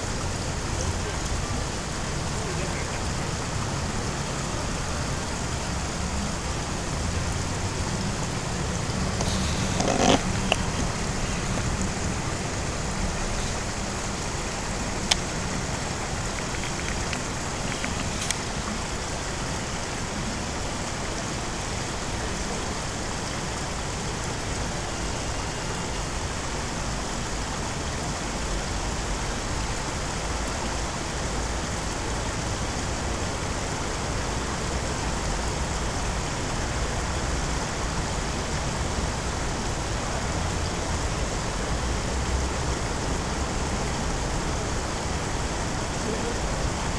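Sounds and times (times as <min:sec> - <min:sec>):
steady rushing noise: 0:00.0 - 0:46.9
faint clicks: 0:16.3 - 0:18.5.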